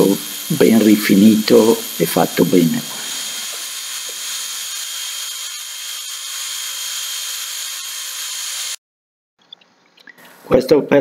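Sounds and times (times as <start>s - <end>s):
milling machine cutting metal: 0.0s - 8.8s.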